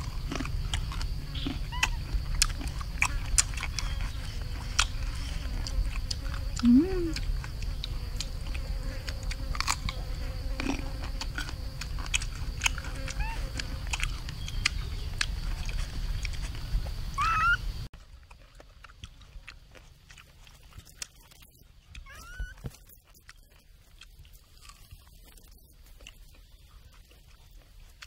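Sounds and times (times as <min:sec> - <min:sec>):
high insect drone: 0:00.0 - 0:17.9
crunchy chewing: 0:00.0 - 0:28.0.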